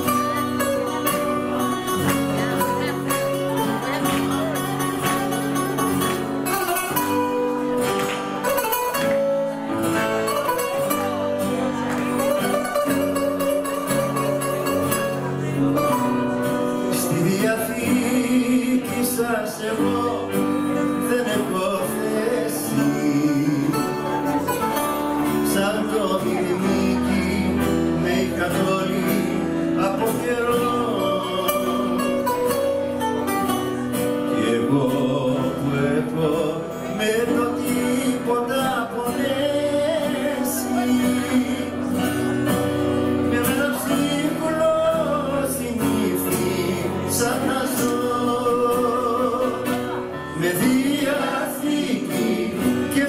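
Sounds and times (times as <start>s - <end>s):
bouzouki playing: 0.0s - 17.4s, 23.0s - 25.9s, 29.0s - 34.4s
man singing: 0.0s - 53.0s.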